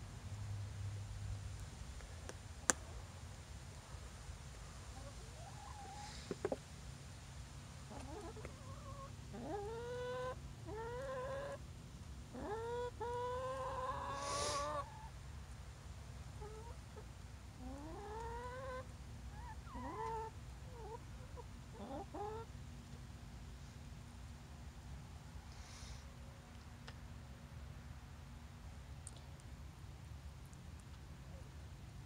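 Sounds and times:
hens calling: 0:07.9 - 0:11.6, 0:12.3 - 0:15.1, 0:17.6 - 0:22.5.

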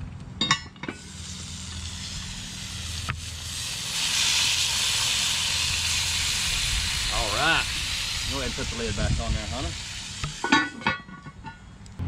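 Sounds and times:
meat sizzling in hot oil: 0:01.0 - 0:10.6.

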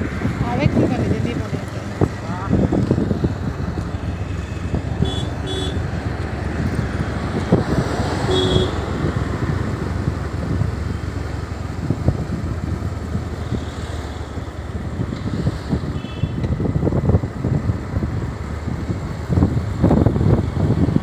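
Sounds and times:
motorbike engine and road rumble: 0:00.0 - 0:21.0
wind buffeting microphone: 0:00.0 - 0:21.0
horn beeps: 0:04.2 - 0:05.8, 0:08.3 - 0:08.8.

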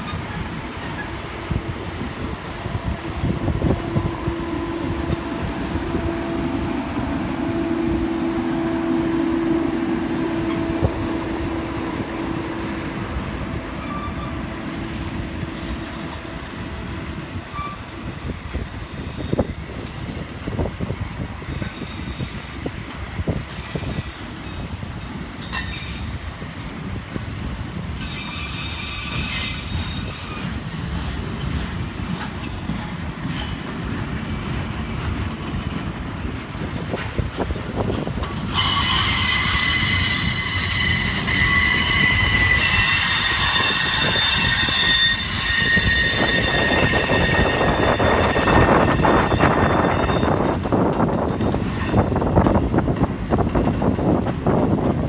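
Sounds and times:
wheel-on-rail rumble and clatter: 0:00.0 - 0:55.0
high-pitched wheel squeal: 0:13.8 - 0:14.5, 0:17.3 - 0:18.0, 0:38.5 - 0:50.6.

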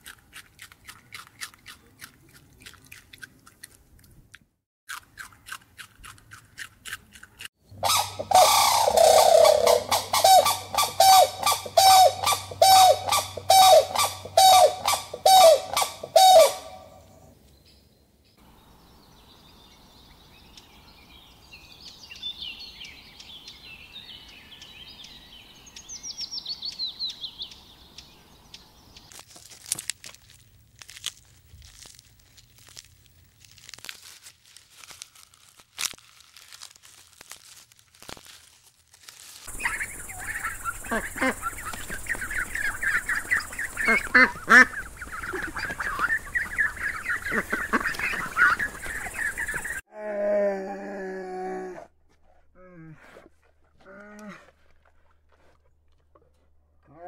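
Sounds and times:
crane honking calls: 0:07.8 - 0:17.1.

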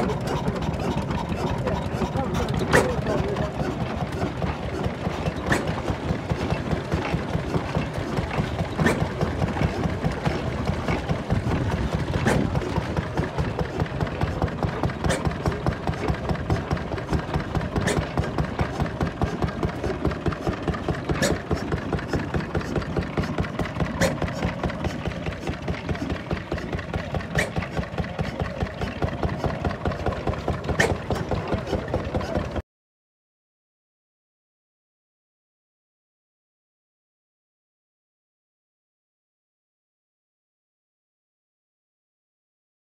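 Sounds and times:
stationary engine chugging: 0:00.0 - 0:32.6.

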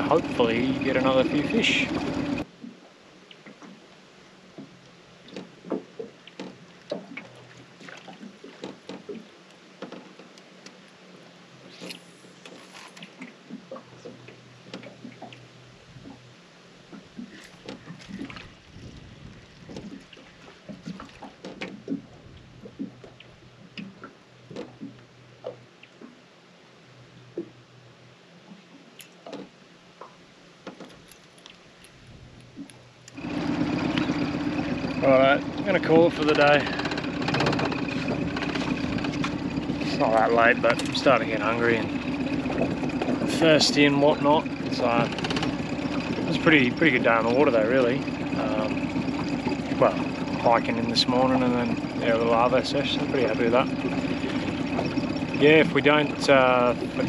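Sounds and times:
outboard motor humming: 0:00.0 - 0:57.0
water lapping against boat hull: 0:00.0 - 0:57.0
faint clicks and ticks: 0:28.5 - 0:35.0.

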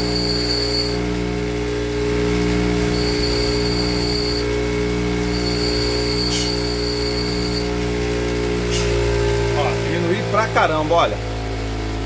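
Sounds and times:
bench grinder grinding: 0:00.0 - 0:01.2, 0:02.7 - 0:07.9.

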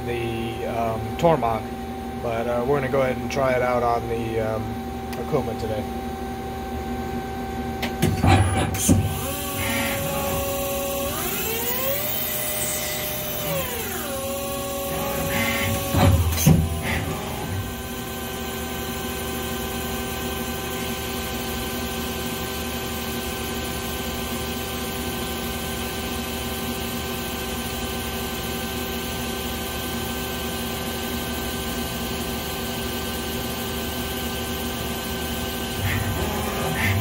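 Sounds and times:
lathe running with steady tones: 0:08.4 - 0:37.0
drill feeding into spinning rod: 0:09.1 - 0:17.4.

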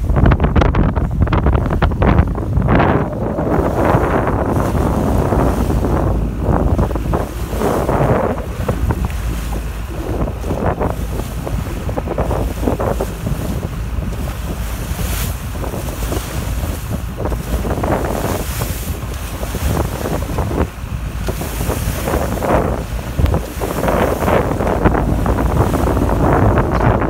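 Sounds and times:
bow wave splashing: 0:00.0 - 0:27.0
low rumble: 0:00.0 - 0:27.0
wind buffeting microphone: 0:00.0 - 0:27.0.

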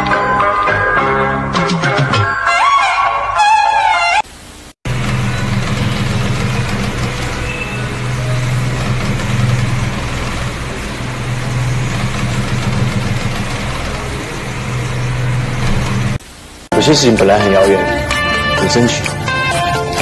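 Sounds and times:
car engine hum: 0:04.9 - 0:16.2
road noise: 0:04.9 - 0:16.2.

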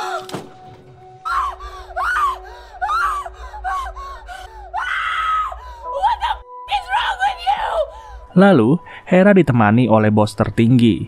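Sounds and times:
woman screaming and crying: 0:01.2 - 0:08.1.

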